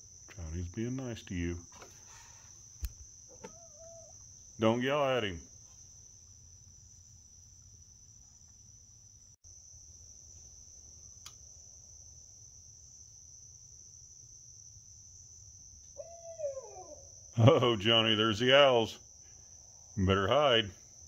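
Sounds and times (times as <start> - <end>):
night insects chorus: 0.0 - 21.0
owl calling: 3.3 - 4.2, 16.0 - 17.2.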